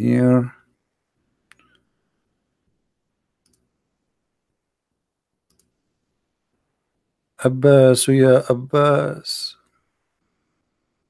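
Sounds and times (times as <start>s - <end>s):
computer mouse clicks: 3.4s - 3.7s, 5.4s - 5.8s.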